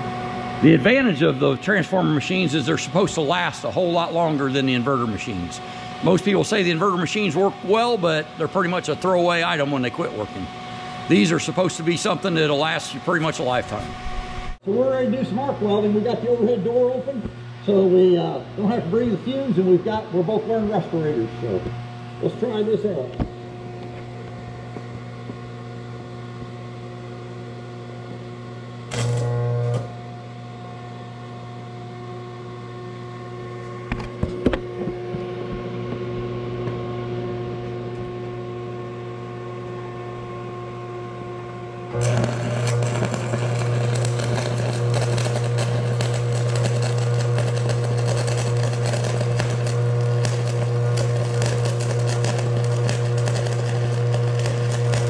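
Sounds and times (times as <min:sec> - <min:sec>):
arc welder humming: 0:00.0 - 0:55.0
welding arc crackling: 0:00.6 - 0:17.9, 0:28.8 - 0:30.2, 0:41.9 - 0:55.0.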